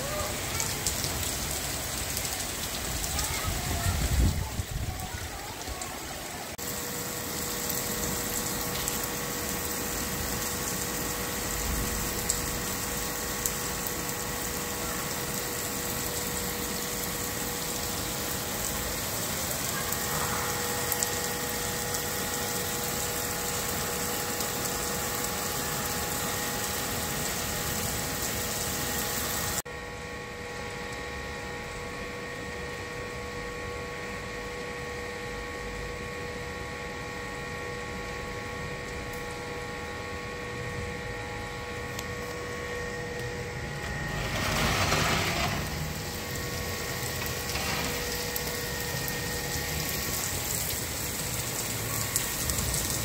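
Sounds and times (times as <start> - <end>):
heavy rain on a tiled roof: 0.0 - 53.0
machine hum: 36.7 - 53.0.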